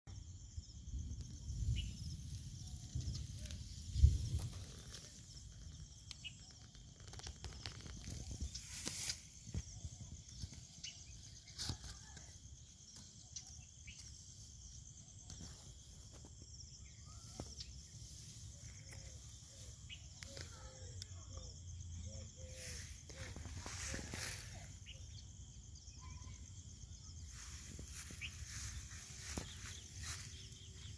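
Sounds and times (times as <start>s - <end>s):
high insect trill: 0.1s - 30.9s
leaves rustling: 1.6s - 9.7s, 22.4s - 25.0s, 27.1s - 30.9s
faint bird chirps: 15.1s - 30.9s.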